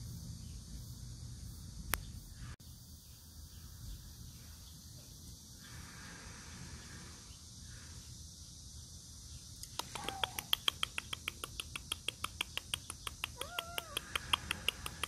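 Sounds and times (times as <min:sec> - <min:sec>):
kitten mew: 0:13.4 - 0:14.2.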